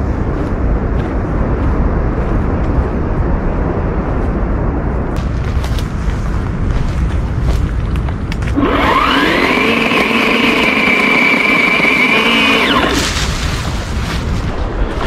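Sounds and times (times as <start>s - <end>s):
branches crackling: 5.2s - 15.0s
cordless chainsaw cutting branch: 8.5s - 13.8s.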